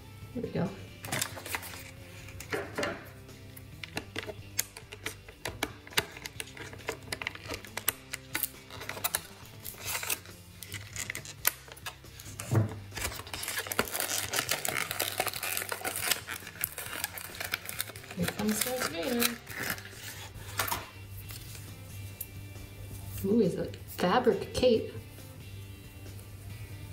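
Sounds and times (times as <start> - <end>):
faint background music: 0.0 - 26.9
plastic packaging crackling: 1.0 - 2.6, 3.8 - 21.6.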